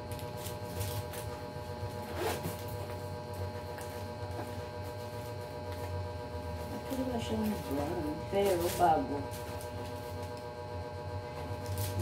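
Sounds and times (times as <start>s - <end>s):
low electrical hum: 0.0s - 12.0s
zipper pulled: 2.0s - 2.6s.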